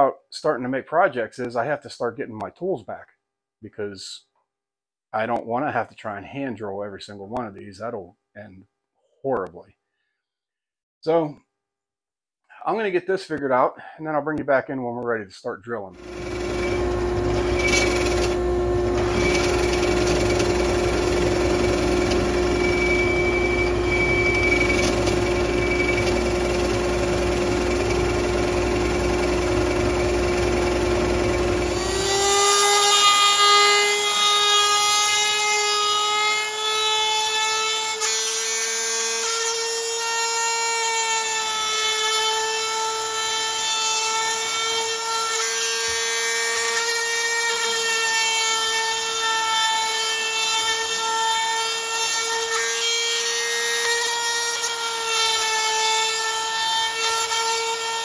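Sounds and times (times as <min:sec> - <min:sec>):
router high whine: 0:16.0 - 0:35.4
drill press boring wood: 0:16.0 - 0:58.0.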